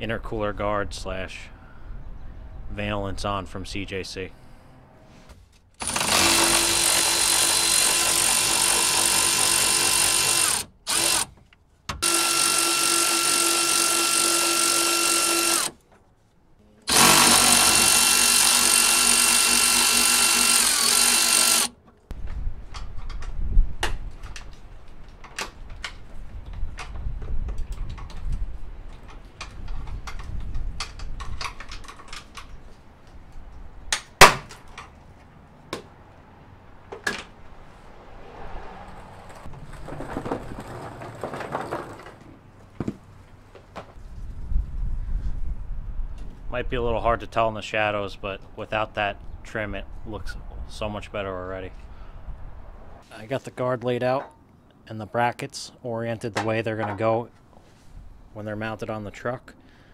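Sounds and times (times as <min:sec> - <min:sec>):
cordless ratchet whirring: 0:05.8 - 0:11.3, 0:12.0 - 0:15.8, 0:16.9 - 0:21.7
clicks and knocks of parts handled: 0:22.7 - 0:35.0.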